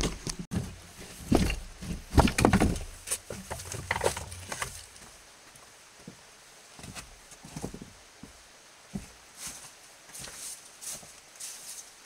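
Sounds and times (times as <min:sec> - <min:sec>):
footsteps scuffing on rock: 0:06.8 - 0:11.9
footsteps crunching dry leaves: 0:09.4 - 0:12.0.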